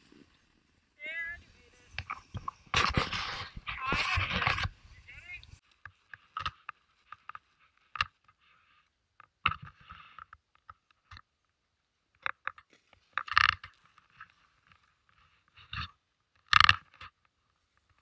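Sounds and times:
scrapes and crunches on snow: 0.0 - 5.6.

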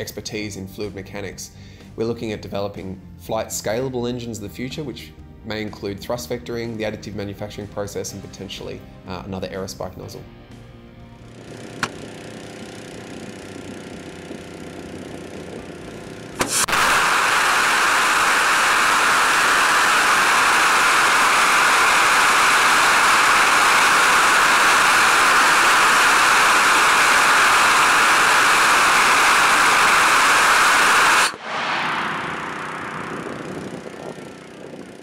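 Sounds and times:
rocket exhaust roar: 11.2 - 35.0
rocket engine ignition crack: 11.5 - 35.0.

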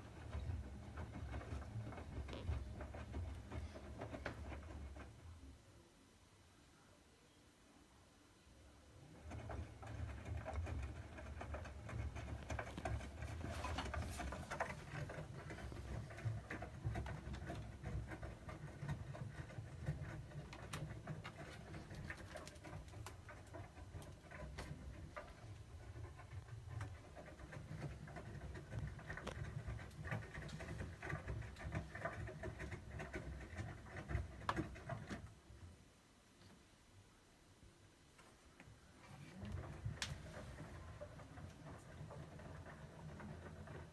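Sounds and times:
washing machine tumbling laundry: 0.0 - 5.5, 9.0 - 35.5, 38.8 - 43.9.

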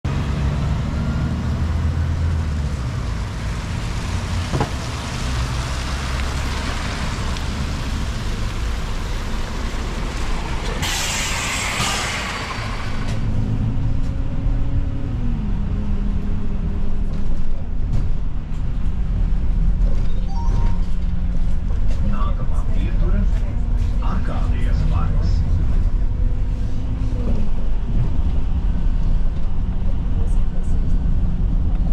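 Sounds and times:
bus engine running: 0.0 - 31.9
pneumatic air hiss: 10.8 - 12.8.

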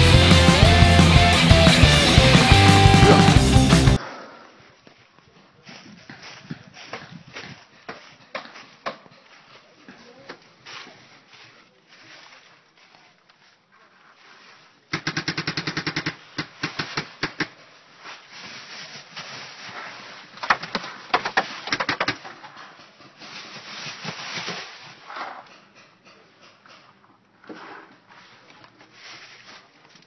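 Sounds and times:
paintball markers firing: 14.9 - 17.6.

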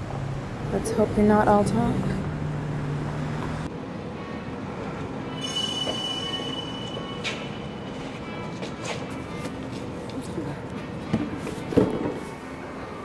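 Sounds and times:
high metallic squeal: 5.3 - 8.1.

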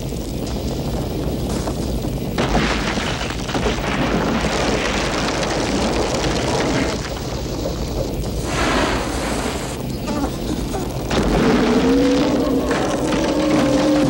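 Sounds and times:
deep rumble: 0.0 - 14.0
explosion-like roar: 10.6 - 14.0.

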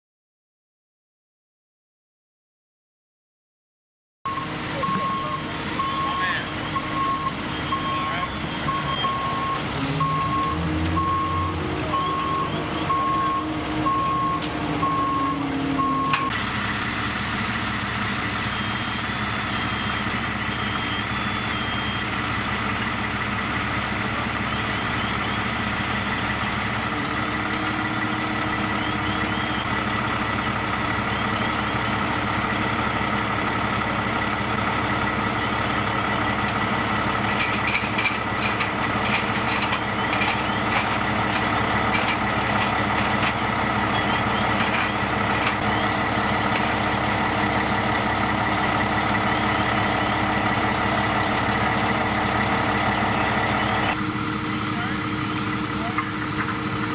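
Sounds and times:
backup alarm beeping: 4.3 - 16.4, 18.4 - 22.2, 38.4 - 46.8
diesel engine running: 4.3 - 56.9.

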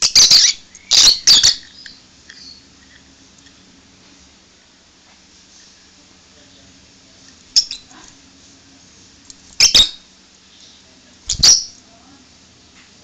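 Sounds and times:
lovebird chirping: 0.0 - 2.7, 7.5 - 7.9, 9.6 - 10.0, 11.3 - 11.8.

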